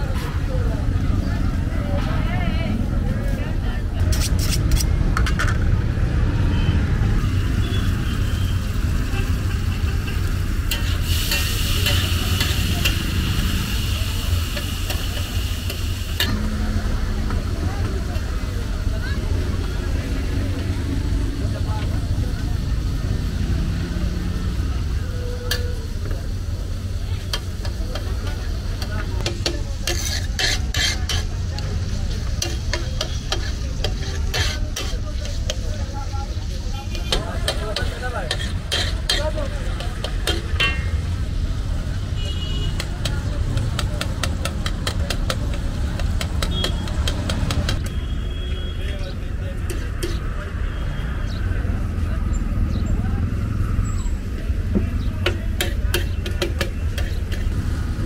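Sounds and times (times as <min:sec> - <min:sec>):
low rumble of road traffic: 0:00.0 - 0:58.0
metal spatula scraping and tapping: 0:04.0 - 0:05.6, 0:10.7 - 0:13.0, 0:27.3 - 0:35.7, 0:36.9 - 0:41.0, 0:42.8 - 0:47.9, 0:49.6 - 0:50.3, 0:55.2 - 0:57.6
metal spatula scraping griddle: 0:04.1 - 0:05.4, 0:29.4 - 0:31.4, 0:32.2 - 0:35.6, 0:36.9 - 0:41.0
food sizzling on a griddle: 0:07.3 - 0:47.6, 0:55.3 - 0:58.0.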